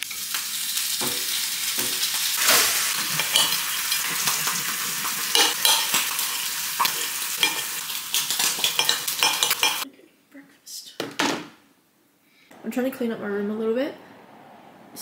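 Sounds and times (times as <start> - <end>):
bacon sizzling in frying pan: 0.0 - 9.8.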